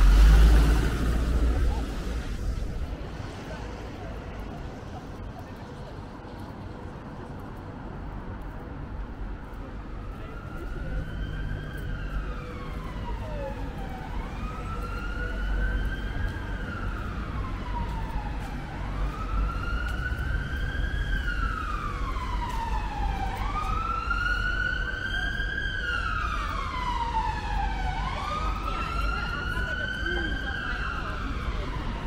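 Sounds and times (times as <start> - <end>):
city traffic rumble: 0.0 - 32.0
emergency siren wailing: 9.5 - 32.0.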